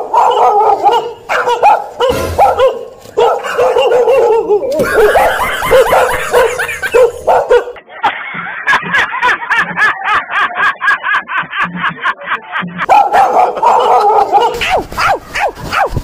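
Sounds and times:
fake dog barking and yapping: 0:00.0 - 0:07.8, 0:12.8 - 0:16.0.

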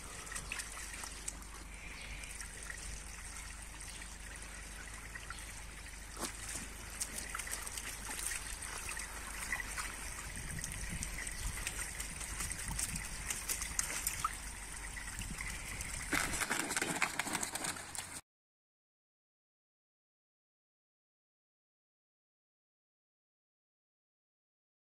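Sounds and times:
puppies splashing in water: 0:00.0 - 0:18.2
water trickling from hose: 0:00.0 - 0:18.2.

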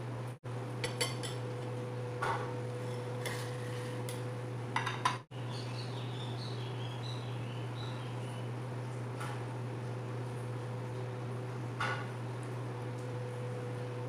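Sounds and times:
knife clinking against plate: 0:00.8 - 0:01.4.

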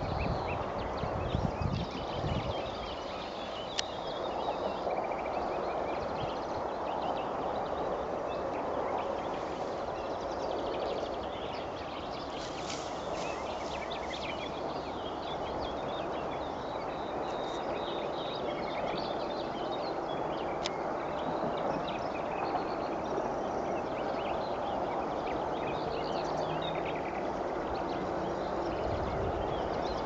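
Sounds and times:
small birds chirping and trilling: 0:00.0 - 0:30.0
steady hiss: 0:02.1 - 0:16.2.

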